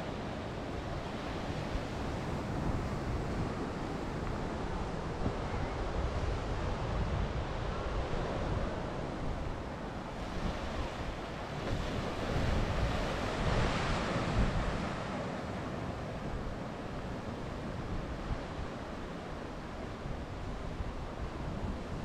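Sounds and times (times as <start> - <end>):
wind buffeting microphone: 0.5 - 15.4.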